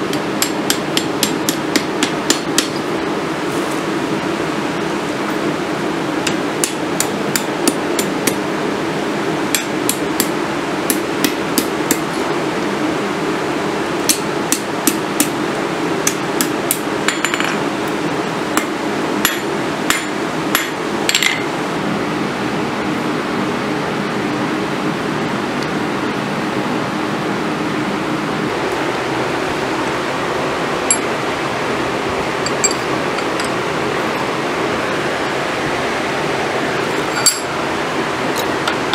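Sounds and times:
hammer striking on anvil: 0:00.0 - 0:02.9, 0:06.3 - 0:08.4, 0:09.5 - 0:12.1, 0:18.6 - 0:21.5, 0:30.9 - 0:31.1
background hum and hiss: 0:00.0 - 0:38.9.

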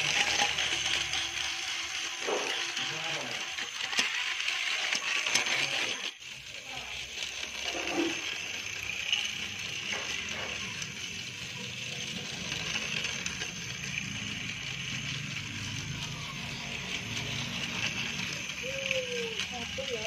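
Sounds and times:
toy train motor whirring: 0:00.0 - 0:20.0.

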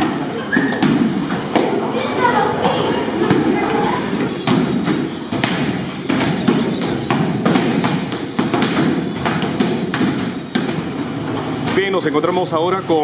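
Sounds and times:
kicks smacking kick paddles: 0:04.4 - 0:11.0.

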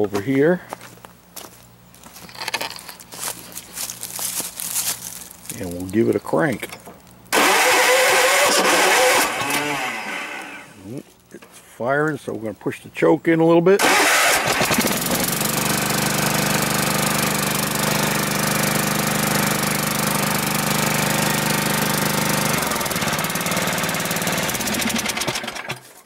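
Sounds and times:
lawn mower engine running: 0:07.3 - 0:11.0, 0:13.8 - 0:26.0.

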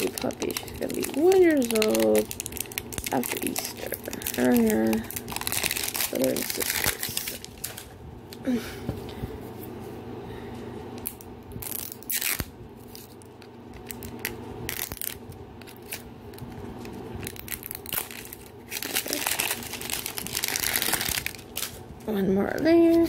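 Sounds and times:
plastic wrapper tearing: 0:00.0 - 0:07.9, 0:11.0 - 0:16.1, 0:17.2 - 0:21.8.

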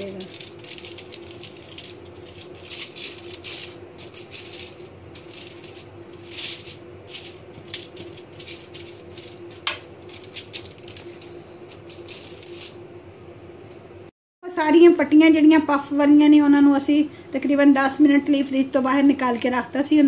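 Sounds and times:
brush crinkling on foil: 0:00.0 - 0:12.8
steady low hum: 0:00.0 - 0:20.0.

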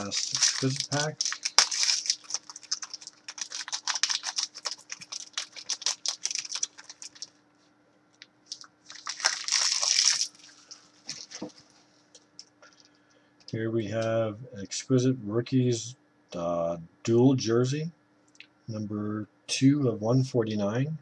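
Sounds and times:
wrapper crinkling and rustling: 0:00.0 - 0:07.4, 0:08.5 - 0:12.0.

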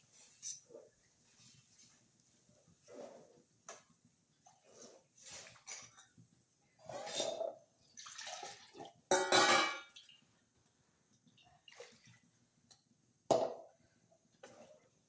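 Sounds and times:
water splashing into a pan: 0:08.0 - 0:10.2
steel clinking against a pan: 0:09.1 - 0:09.9.

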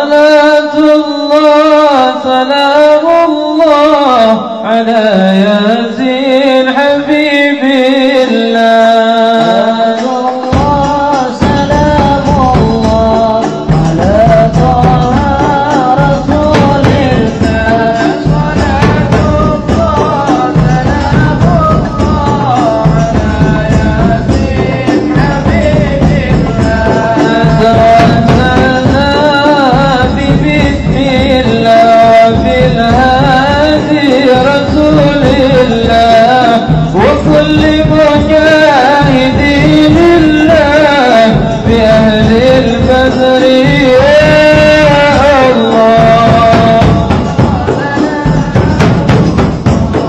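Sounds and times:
person singing devotional song: 0:00.0 - 0:50.0
frame drums beating: 0:08.0 - 0:50.0.

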